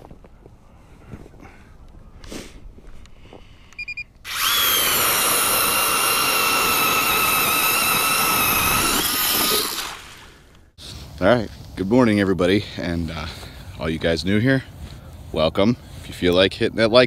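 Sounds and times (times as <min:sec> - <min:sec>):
short beeps: 0:03.7 - 0:04.1
ice auger motor whine: 0:04.3 - 0:10.2.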